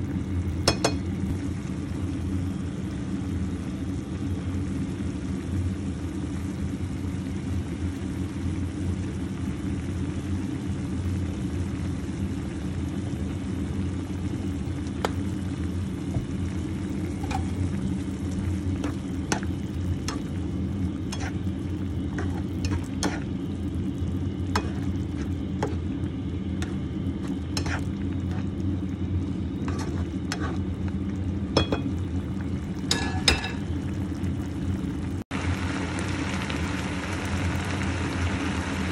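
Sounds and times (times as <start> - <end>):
stew bubbling in a pan: 0.0 - 38.9
spatula scraping a pan: 21.1 - 21.5, 22.1 - 23.4, 24.6 - 25.8, 26.6 - 28.5, 29.6 - 30.6.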